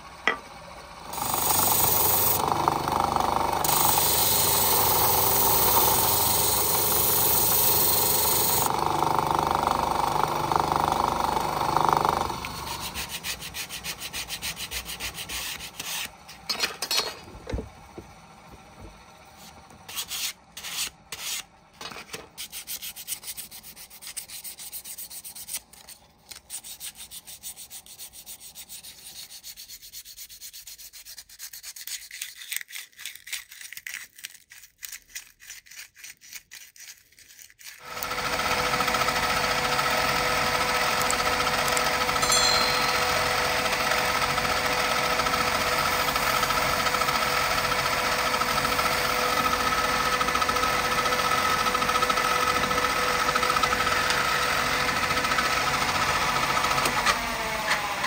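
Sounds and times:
electric disc sander running: 0.0 - 16.2, 37.8 - 58.0
sandpaper rubbing on wood: 12.6 - 16.1, 19.9 - 21.4, 22.4 - 33.2, 34.6 - 37.9.

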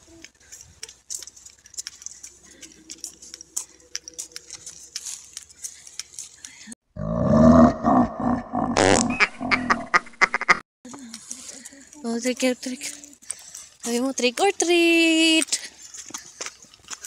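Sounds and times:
rustling: 0.0 - 6.8.

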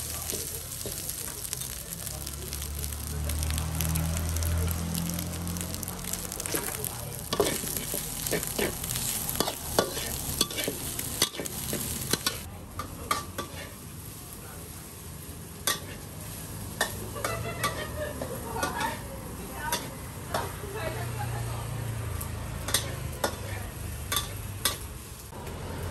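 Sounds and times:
food sizzling: 0.0 - 25.9
metal spatula scraping a wok: 6.2 - 13.9, 15.6 - 19.1.

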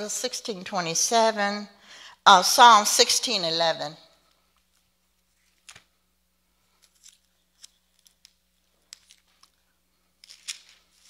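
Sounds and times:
thin pages rustling: 4.5 - 5.9, 10.2 - 11.0.

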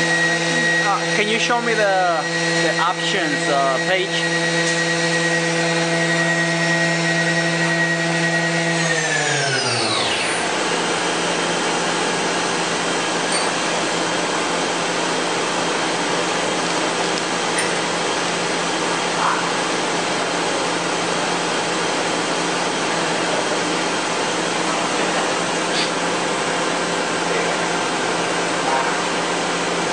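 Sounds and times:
machine spindle whining down: 0.0 - 14.3
steady machine hum: 0.0 - 29.9.

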